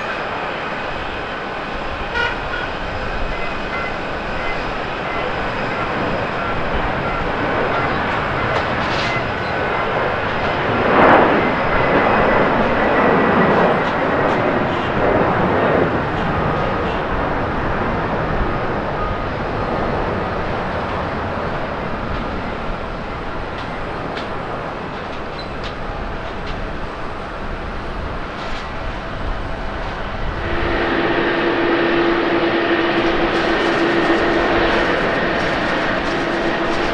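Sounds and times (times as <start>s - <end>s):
jet engines at takeoff: 0.0s - 36.9s
faint high whine: 30.3s - 36.9s.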